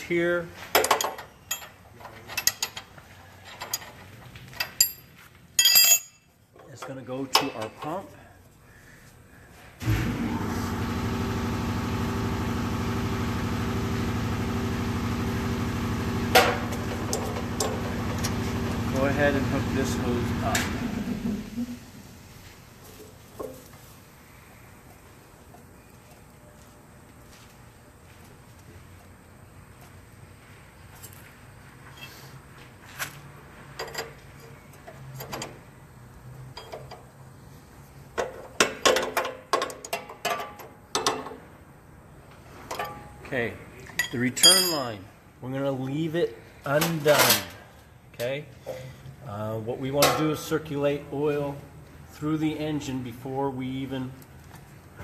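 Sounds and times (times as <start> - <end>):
machine hum: 9.8 - 22.5.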